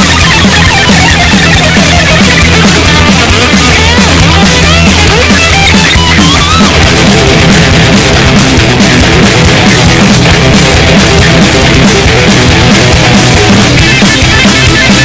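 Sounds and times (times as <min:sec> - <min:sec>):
driving drum beat: 0:00.0 - 0:15.0
electric guitar: 0:00.0 - 0:15.0
loud rock music: 0:00.0 - 0:15.0.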